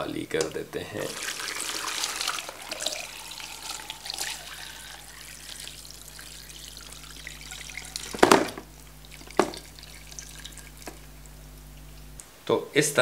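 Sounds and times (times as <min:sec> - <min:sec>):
broth pouring through strainer: 0:01.0 - 0:11.3
meat knocking onto strainer: 0:09.3 - 0:09.6.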